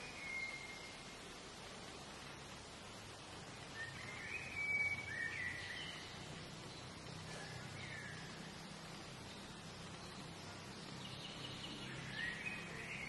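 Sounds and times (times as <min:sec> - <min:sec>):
songbird whistling: 0:00.0 - 0:00.9, 0:03.8 - 0:06.1.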